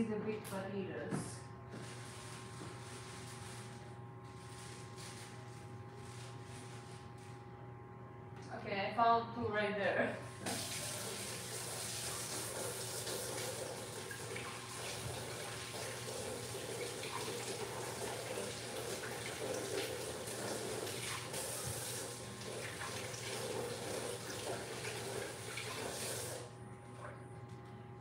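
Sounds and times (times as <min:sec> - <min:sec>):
kitchen tap running into sink: 0:10.4 - 0:26.5
potatoes rinsed by hand: 0:10.4 - 0:26.5.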